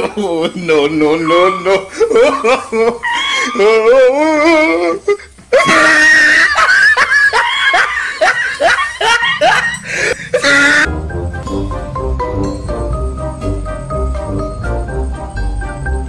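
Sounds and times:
shrieking human laughter: 0:00.0 - 0:10.9
background music: 0:09.0 - 0:16.0.

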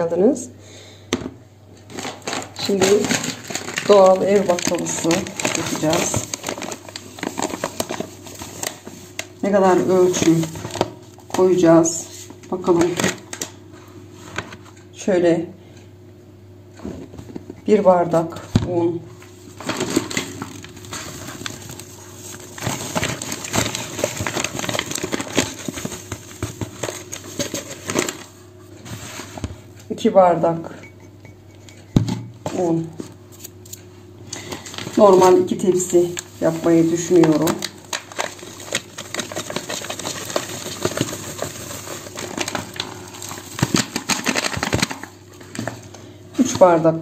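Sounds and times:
flour crackling in a bowl: 0:02.5 - 0:12.3, 0:34.5 - 0:45.6.

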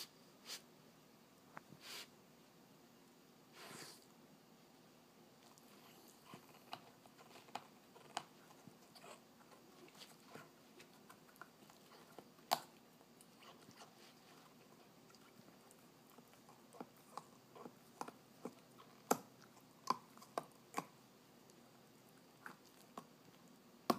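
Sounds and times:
puppy gnawing chew toy: 0:05.4 - 0:23.9.

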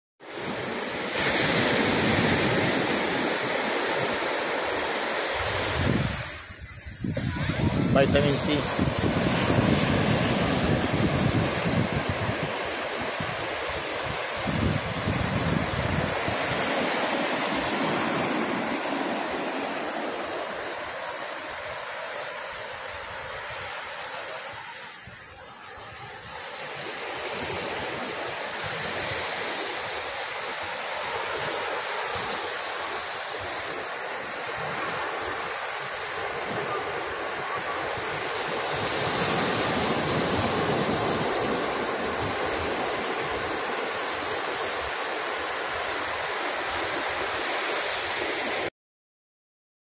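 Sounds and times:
waves breaking on a beach: 0:00.2 - 0:48.7.

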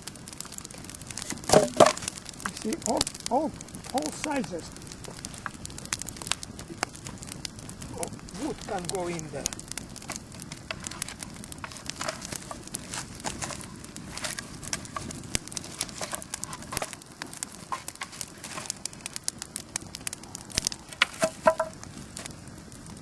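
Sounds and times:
campfire crackling and popping: 0:00.0 - 0:23.0.

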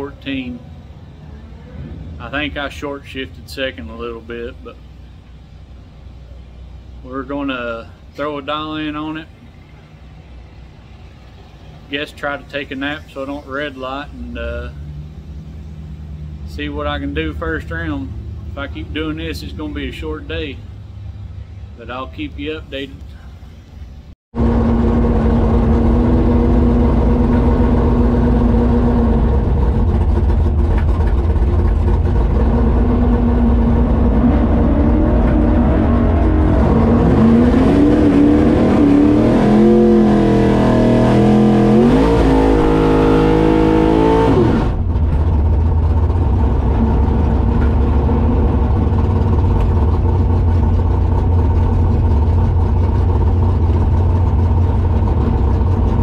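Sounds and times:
engine running loudly: 0:24.4 - 0:56.0.

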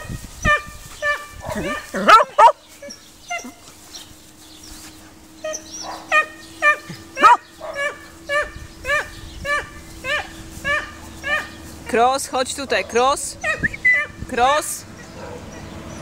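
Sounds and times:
dog barking: 0:01.4 - 0:02.6, 0:05.8 - 0:11.6, 0:15.0 - 0:15.6.

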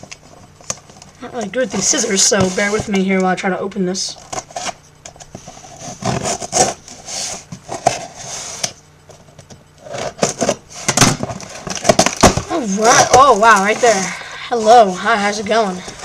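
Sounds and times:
cardboard rubbing: 0:01.6 - 0:02.9, 0:04.2 - 0:08.8, 0:09.8 - 0:16.0.

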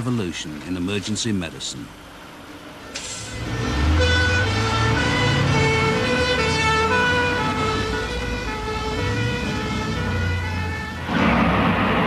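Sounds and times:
vehicle engine rumble: 0:00.0 - 0:12.0
ambulance siren: 0:02.8 - 0:11.2.

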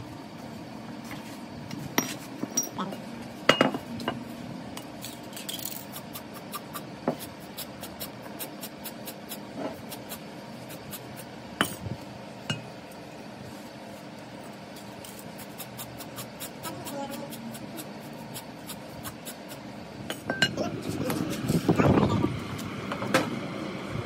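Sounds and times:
steady low hum: 0:00.0 - 0:24.0
metal parts clinking: 0:05.0 - 0:05.9.

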